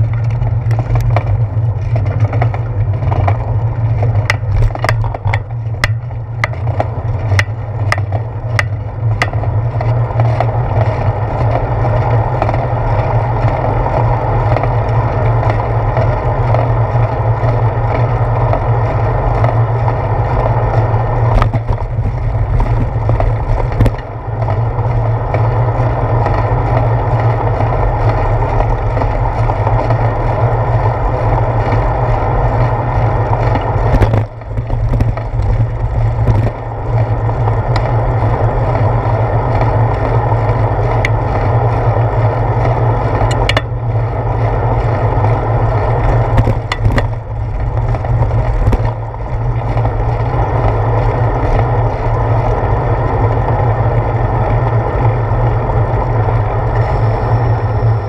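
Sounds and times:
road rumble from bicycle: 0.0 - 58.0
wind noise: 0.0 - 58.0.

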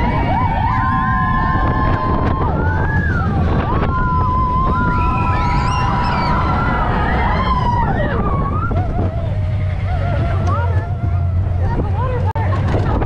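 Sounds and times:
roller coaster rumbling on track: 0.0 - 13.0
wind on microphone: 0.0 - 13.0
high wheel squeals: 4.0 - 11.7.

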